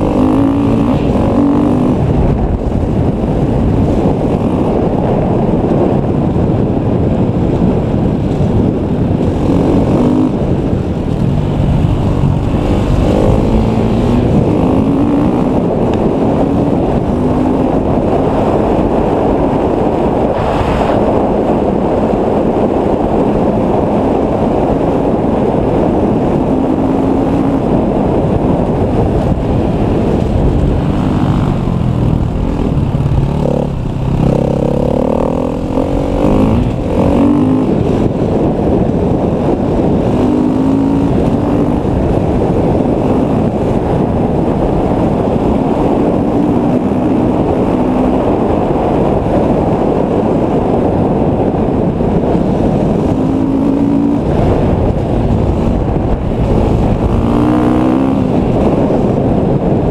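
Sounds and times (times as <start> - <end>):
motorcycle engine revving: 0.0 - 59.9
wind on microphone: 0.0 - 59.9.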